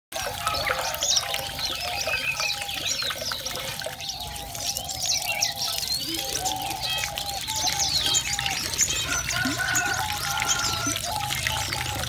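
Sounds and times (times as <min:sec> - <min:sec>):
water splashing in bird bath: 0:00.1 - 0:12.0
finches chirping and calling: 0:00.2 - 0:12.0.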